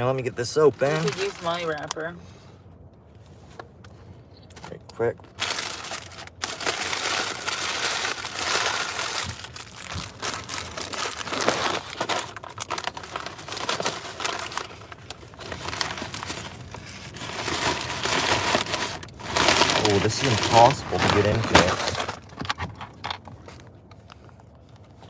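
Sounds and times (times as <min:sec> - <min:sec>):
food packaging crinkling: 0:00.7 - 0:01.8, 0:05.2 - 0:22.4.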